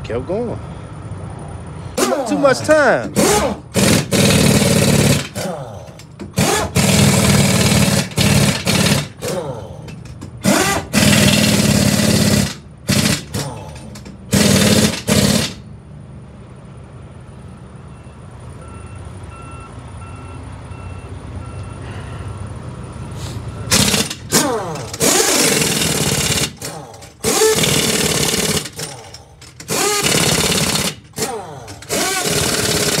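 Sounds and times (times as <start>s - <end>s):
pneumatic impact wrench hammering: 2.0s - 15.7s, 23.7s - 33.0s.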